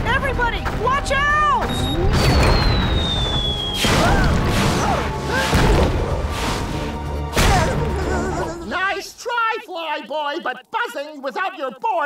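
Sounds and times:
background music: 0.0 - 12.0
falling whistle: 1.6 - 4.4.

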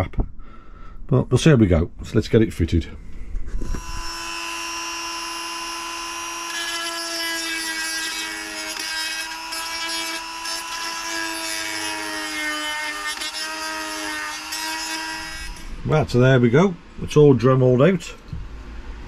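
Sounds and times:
rotary tool cutting plastic: 3.5 - 15.7
rotary tool whining: 3.5 - 15.8.

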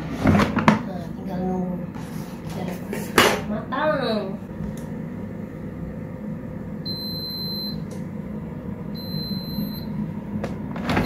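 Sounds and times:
air fryer fan humming: 0.0 - 11.0
air fryer long high beeps: 5.1 - 11.0.

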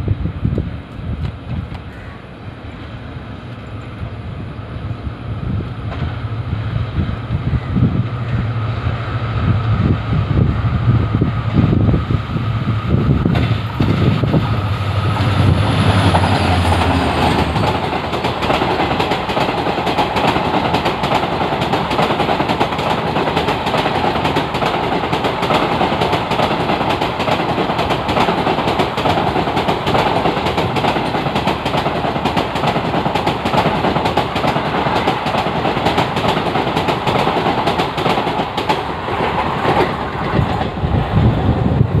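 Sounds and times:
diesel locomotive engine drone: 0.0 - 42.0
train wheel and rail noise: 0.0 - 42.0
wheels clicking over rail joints: 13.2 - 41.3.

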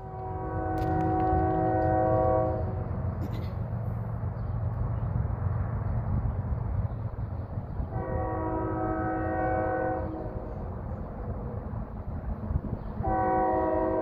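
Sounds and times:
locomotive horn chord: 0.0 - 2.9, 7.9 - 10.4, 13.0 - 14.0
freight train rumbling: 0.0 - 14.0.

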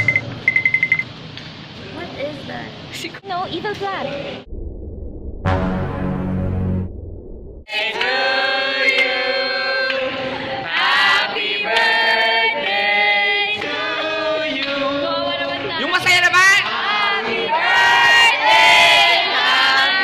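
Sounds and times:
voices singing in chorus: 7.7 - 15.8, 16.6 - 20.0.

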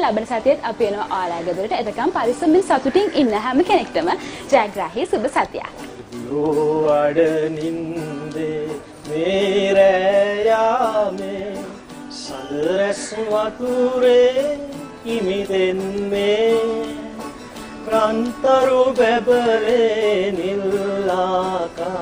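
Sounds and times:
acoustic guitar: 0.0 - 22.0
man singing: 6.0 - 22.0.

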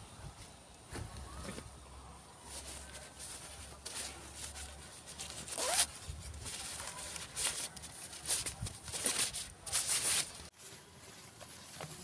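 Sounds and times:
nylon sack rustling against backpack: 2.5 - 12.0.

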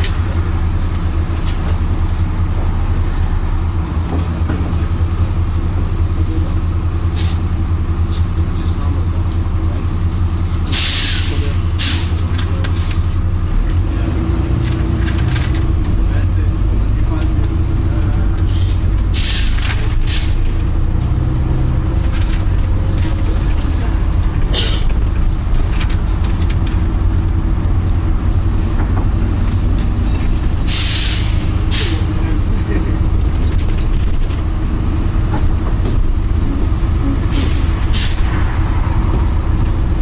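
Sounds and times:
bus engine idling: 0.0 - 40.0
road noise: 0.0 - 40.0
air brake hiss: 7.2 - 7.4, 10.7 - 12.1, 18.5 - 20.4, 30.7 - 32.0.

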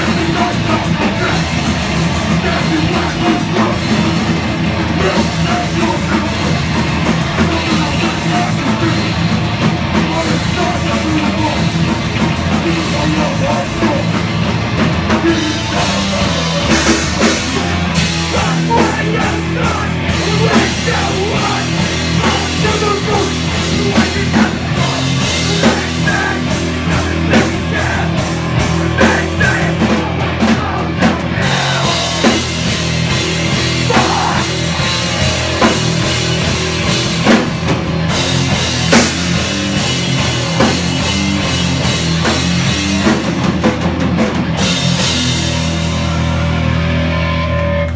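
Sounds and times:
vocals into a microphone: 0.0 - 9.3, 9.9 - 14.3, 15.0 - 32.6, 33.6 - 34.7
distorted electric guitar: 0.0 - 47.9
pounding drum kit: 0.0 - 47.9.

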